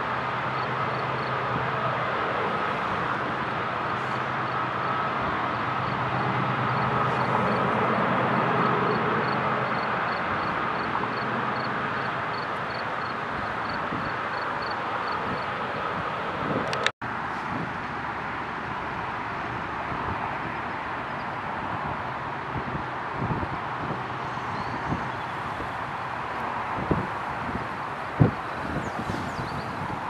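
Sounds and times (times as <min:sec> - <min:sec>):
distant diesel locomotives rumbling: 0:00.0 - 0:16.4.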